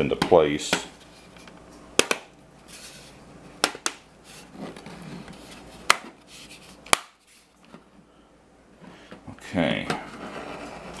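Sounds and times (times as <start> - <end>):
plastic rubbing and handling: 4.2 - 7.9.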